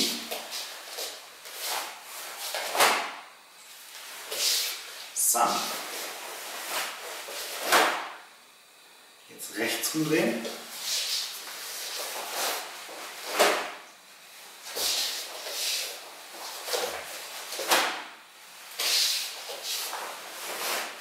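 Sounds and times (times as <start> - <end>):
staff swishing: 4.0 - 8.1, 10.5 - 13.8, 14.6 - 18.0, 18.7 - 21.0.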